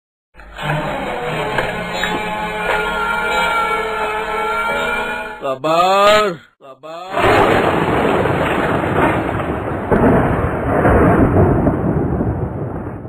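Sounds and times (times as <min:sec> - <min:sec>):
brief wavering tone: 0:00.6 - 0:05.4
cartoon thunder rumble: 0:07.1 - 0:13.0.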